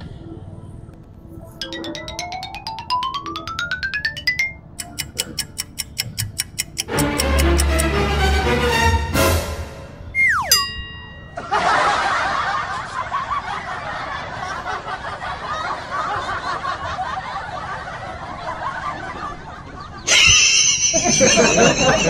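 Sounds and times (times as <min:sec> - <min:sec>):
people laughing: 0:11.4 - 0:22.0.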